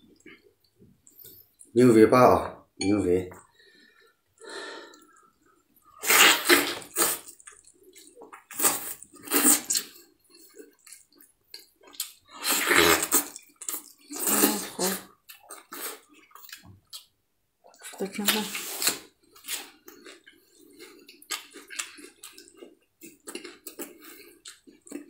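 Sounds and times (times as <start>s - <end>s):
meat tearing wet ripping: 6.0s - 7.7s, 18.2s - 19.8s.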